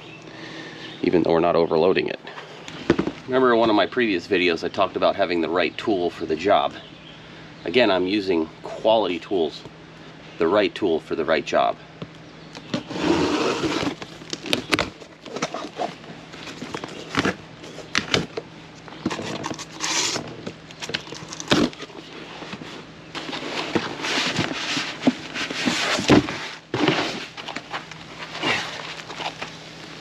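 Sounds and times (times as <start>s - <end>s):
packing foam and plastic rustling: 12.7s - 18.4s, 19.0s - 30.0s
packing tape scraped and torn: 12.8s - 16.0s, 19.1s - 21.9s.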